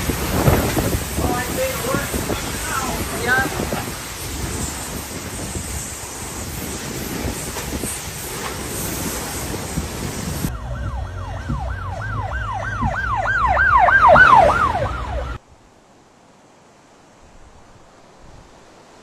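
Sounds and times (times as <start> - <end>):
wind and rain rushing: 0.0 - 19.0
police siren yelping: 10.5 - 15.4.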